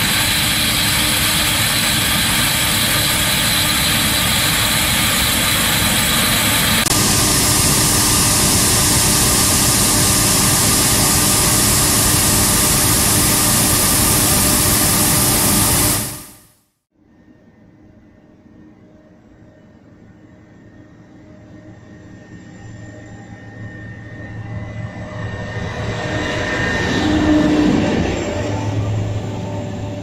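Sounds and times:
combine harvester engine running: 0:00.0 - 0:16.4
steady hum: 0:00.0 - 0:16.4.

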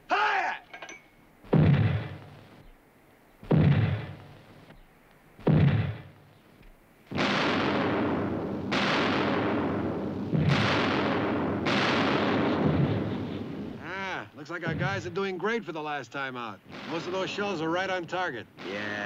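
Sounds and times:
mortars firing: 0:01.4 - 0:02.6, 0:03.4 - 0:04.7, 0:05.4 - 0:06.2, 0:07.1 - 0:15.4, 0:16.6 - 0:19.0
rumble of shells exploding: 0:01.5 - 0:02.5, 0:03.5 - 0:04.5, 0:05.4 - 0:06.2, 0:07.1 - 0:13.8, 0:16.6 - 0:19.0.

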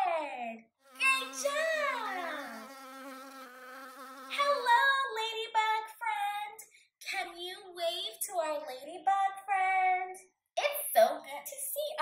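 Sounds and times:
woman speaking: 0:00.0 - 0:02.5, 0:04.4 - 0:12.0
insect buzzing in flight: 0:00.8 - 0:04.4.

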